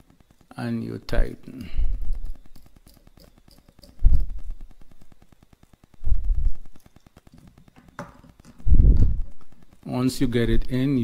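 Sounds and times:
screwdriver handling noise: 0:01.9 - 0:05.1.

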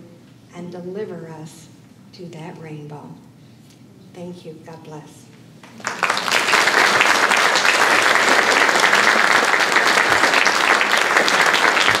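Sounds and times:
crowd applauding: 0:05.6 - 0:12.0.

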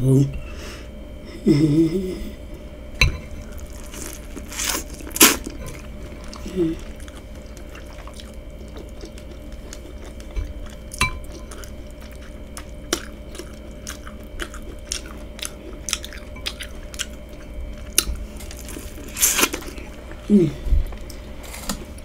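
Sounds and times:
faint steady hum: 0:00.0 - 0:22.0
chewing corn on the cob: 0:03.6 - 0:20.3
spoon clinking glass bowl: 0:11.0 - 0:11.3.

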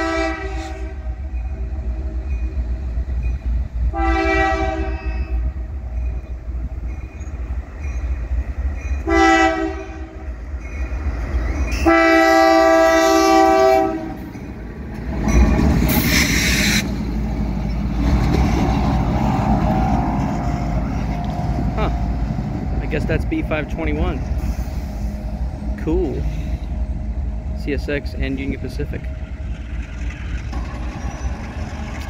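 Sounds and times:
locomotive horn blasts: 0:00.0 - 0:01.2, 0:03.9 - 0:05.5, 0:09.0 - 0:10.3, 0:11.8 - 0:14.2
diesel locomotive engine rumble: 0:00.0 - 0:32.0
train wheel noise: 0:00.0 - 0:32.0.

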